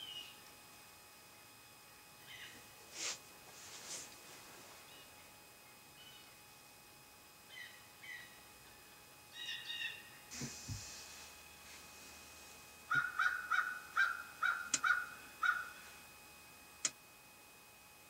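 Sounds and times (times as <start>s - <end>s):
rustle: 2.9s - 5.0s
short high bird calls: 9.3s - 10.2s, 12.9s - 15.9s
crow cawing: 12.9s - 15.9s.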